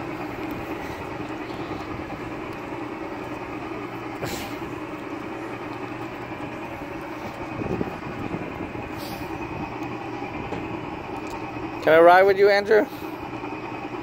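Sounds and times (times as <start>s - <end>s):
kiddie train ride humming: 0.0s - 14.0s
short hisses: 4.2s - 4.6s, 9.0s - 9.3s.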